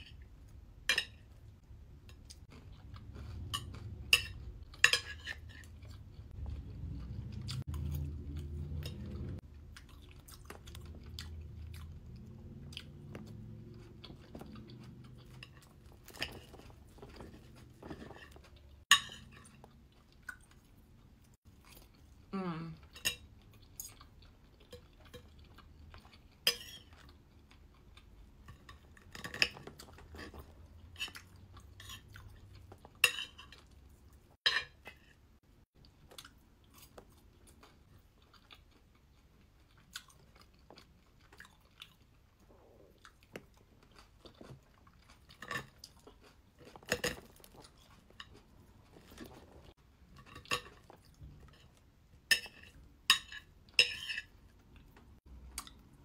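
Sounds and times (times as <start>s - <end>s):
chewing and crunching toast: 0.0s - 56.0s
knife and fork scraping a plate: 52.3s - 54.3s.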